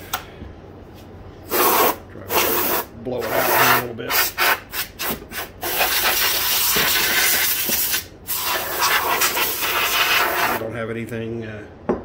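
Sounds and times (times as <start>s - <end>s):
compressed air hissing: 1.4s - 10.6s.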